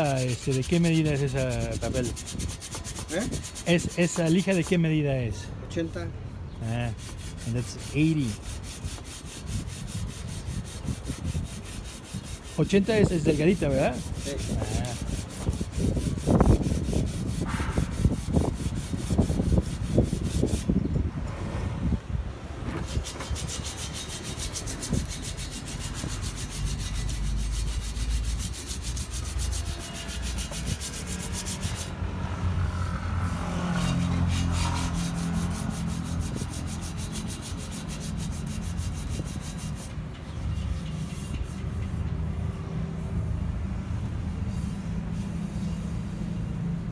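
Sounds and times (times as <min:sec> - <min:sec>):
sandpaper rubbing on metal rim: 0:00.0 - 0:05.4, 0:06.6 - 0:20.8, 0:22.8 - 0:32.0, 0:33.2 - 0:42.1, 0:44.3 - 0:46.5.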